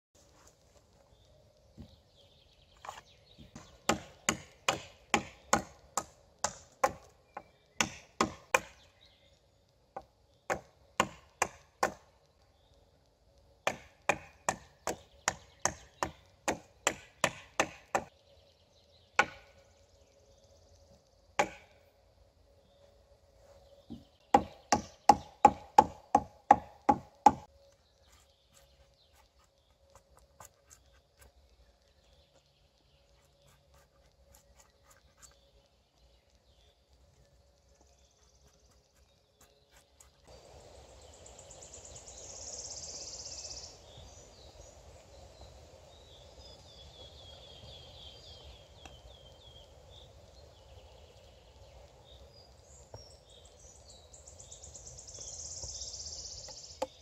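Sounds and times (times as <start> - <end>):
steady forest hiss: 0.2 - 57.0
birds chirping: 0.4 - 57.0
hatchet chopping wood: 3.4 - 8.9, 10.0 - 12.1, 13.6 - 18.1, 19.2 - 19.6, 21.4 - 21.7, 23.9 - 27.5.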